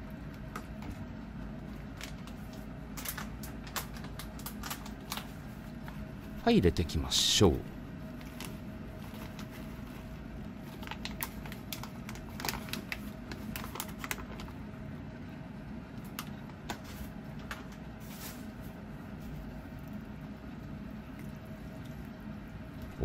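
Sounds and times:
steady low hum: 0.0s - 23.0s
foil pouch crinkling: 8.1s - 14.6s.

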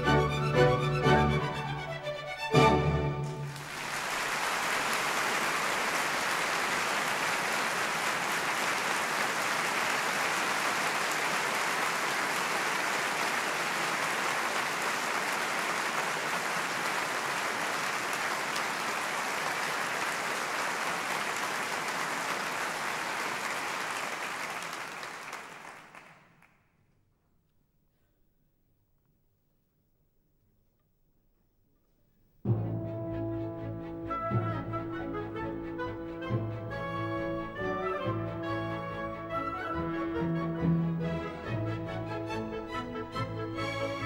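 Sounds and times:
audience applauding: 3.2s - 26.8s.

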